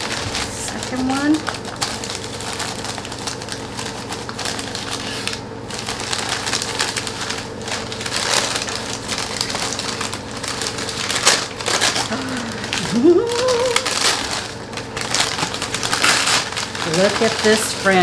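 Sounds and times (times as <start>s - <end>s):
packing material rustling and crinkling: 0.0s - 18.0s.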